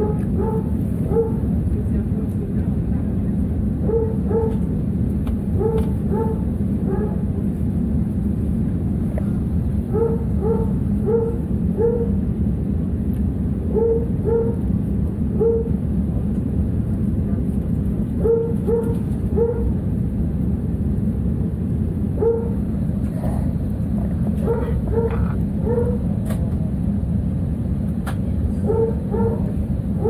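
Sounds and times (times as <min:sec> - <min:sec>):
dog barking: 0:00.0 - 0:01.4, 0:03.8 - 0:04.6, 0:05.6 - 0:07.3, 0:09.9 - 0:12.2, 0:13.7 - 0:14.6, 0:15.4 - 0:15.7, 0:18.2 - 0:19.8, 0:22.2 - 0:22.6, 0:24.4 - 0:26.0, 0:28.6 - 0:29.6
airliner cabin rumble: 0:00.0 - 0:30.0.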